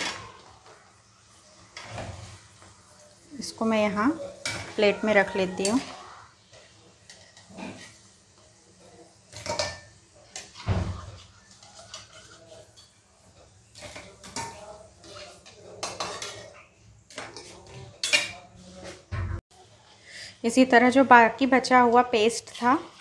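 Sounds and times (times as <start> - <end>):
metal spoon scraping metal pan: 4.4 - 8.1, 11.2 - 16.5, 22.2 - 23.0.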